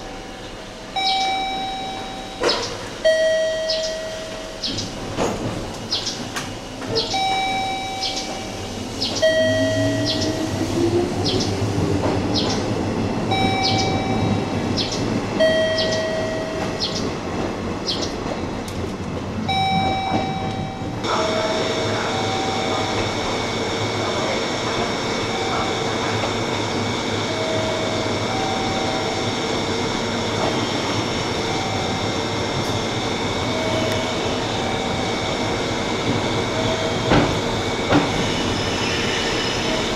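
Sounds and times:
two-tone warning chime: 0.1 - 4.9, 7.0 - 10.5, 13.3 - 17.1, 19.5 - 23.6, 25.1 - 26.6, 27.2 - 30.0, 31.3 - 38.0, 39.6 - 39.9
electric train motor whine: 19.5 - 39.9.

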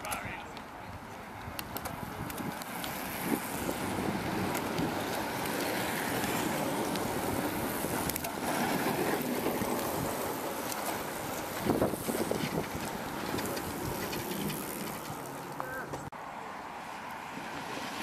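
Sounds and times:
bicycle tyres humming on tarmac: 0.0 - 18.0
wind on microphone: 0.8 - 10.5, 11.2 - 14.8.

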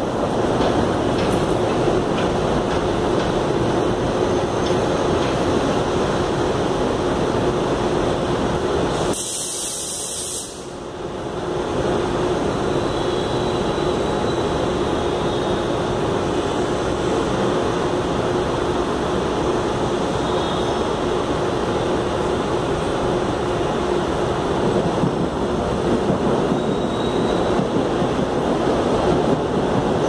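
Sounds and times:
electric train rumbling: 0.0 - 30.0
loud sharp hiss: 8.8 - 10.9.

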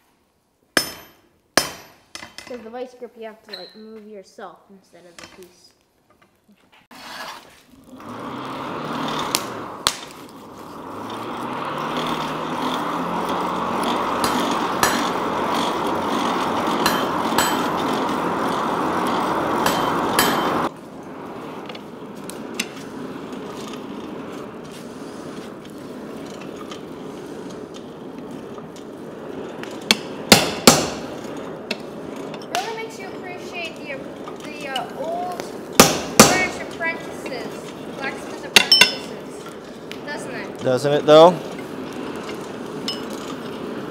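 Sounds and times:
hammer striking steel on anvil: 0.8 - 2.5, 14.2 - 15.4, 16.8 - 18.0, 19.6 - 20.7, 29.9 - 31.0, 35.8 - 36.5, 38.6 - 39.1
steady rushing noise: 7.9 - 43.9.

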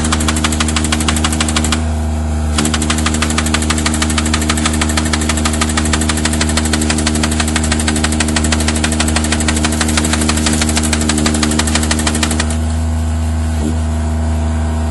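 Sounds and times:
rapid even ticking: 0.0 - 1.8, 2.6 - 12.6
forestry machine engine running: 0.0 - 14.9.

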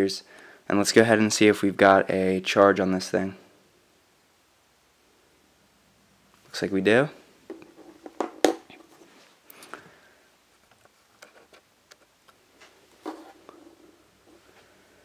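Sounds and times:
tablet knocking on tabletop: 7.5 - 8.7.

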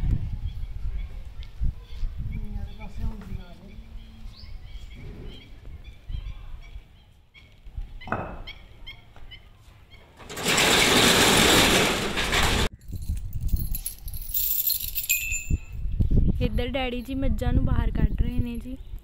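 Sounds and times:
metal rolling shutter rattling: 10.2 - 12.7.

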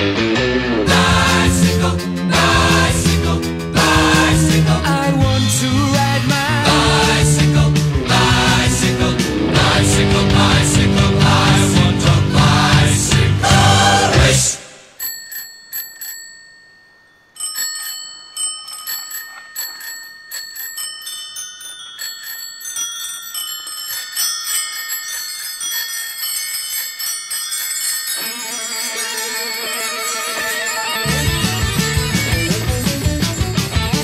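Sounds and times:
electric guitar: 0.0 - 14.4, 29.7 - 34.0
bicycle bells ringing: 14.9 - 34.0.

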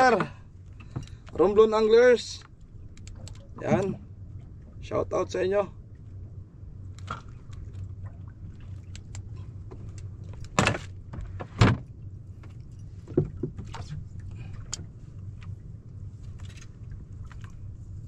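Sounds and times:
steady low hum: 0.0 - 18.0
light clicks and taps: 2.4 - 4.0, 8.8 - 10.6
gear knocking in a boat: 8.9 - 15.6.

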